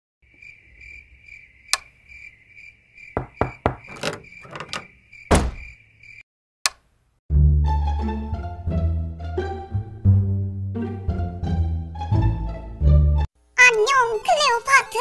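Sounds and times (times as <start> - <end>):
crickets chirping: 0.2 - 6.2
sharp knocks and thumps: 3.2 - 5.8.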